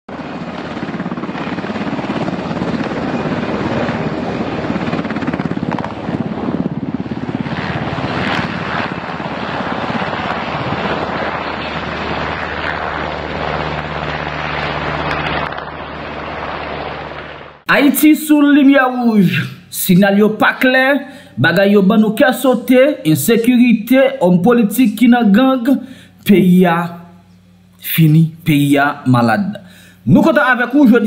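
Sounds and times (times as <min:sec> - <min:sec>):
helicopter rotor blades beating: 0:00.1 - 0:31.0.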